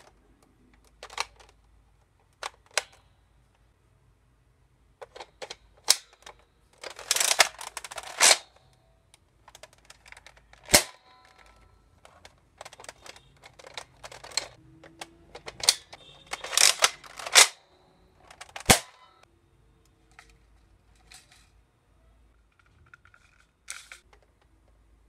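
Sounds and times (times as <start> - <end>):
sharp plastic snaps: 5.0 - 17.6, 18.3 - 19.1
plastic blaster clacking: 5.1 - 8.4, 12.1 - 17.6, 18.3 - 19.0.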